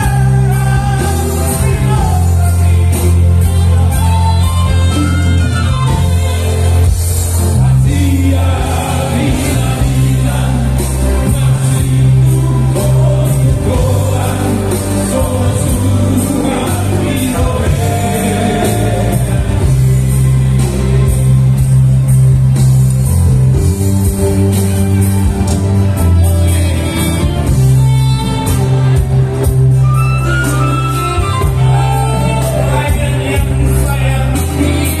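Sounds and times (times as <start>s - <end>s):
men singing in harmony: 0.0s - 4.3s, 5.9s - 21.4s, 30.7s - 35.0s
live band playing: 0.0s - 35.0s.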